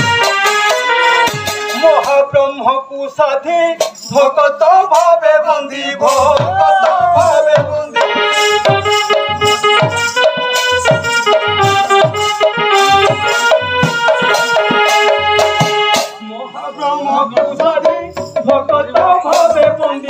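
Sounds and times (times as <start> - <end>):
reed keyboard chords: 8.0 - 18.0.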